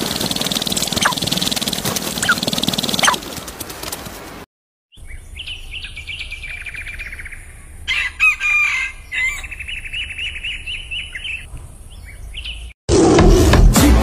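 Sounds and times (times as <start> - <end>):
rooster crowing: 7.9 - 9.6.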